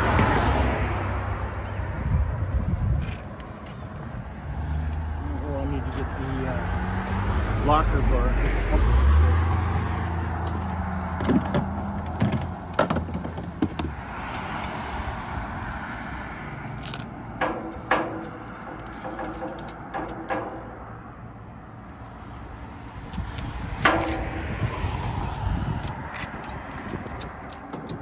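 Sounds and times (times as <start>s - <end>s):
road traffic passing: 0.0s - 28.0s
tools rattling in toolbox: 17.4s - 20.7s
steel hook and shackle knocking: 17.4s - 21.0s.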